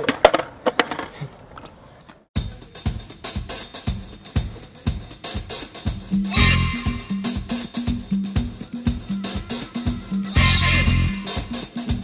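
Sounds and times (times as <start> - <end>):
skateboard clacking on concrete: 0.0 - 1.8
drum kit beat: 2.4 - 12.0.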